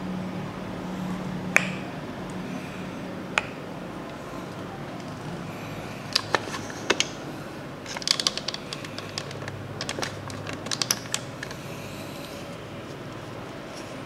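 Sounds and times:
plastic toy clicking: 7.9 - 11.5.

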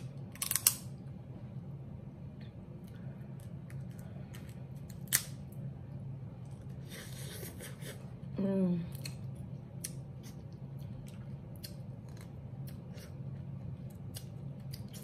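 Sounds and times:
low hum: 0.0 - 15.0
crab shell cracking: 0.3 - 0.9.

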